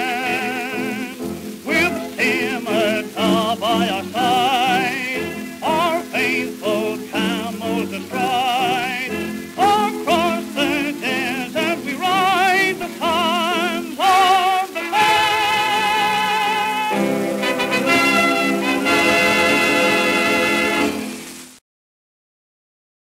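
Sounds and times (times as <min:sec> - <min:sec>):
old dance orchestra record: 0:00.0 - 0:21.6.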